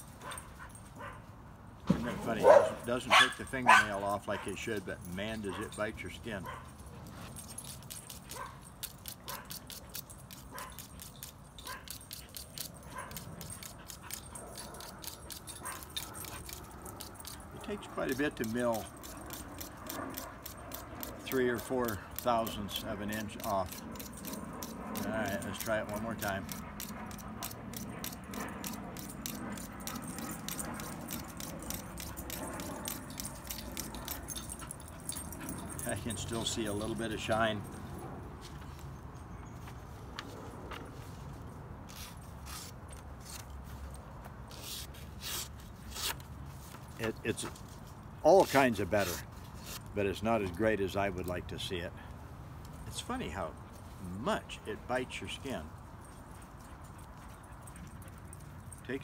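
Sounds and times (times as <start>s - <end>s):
knife scraping on sharpener: 7.6s - 34.3s, 41.9s - 43.6s, 44.5s - 46.2s, 48.3s - 50.0s.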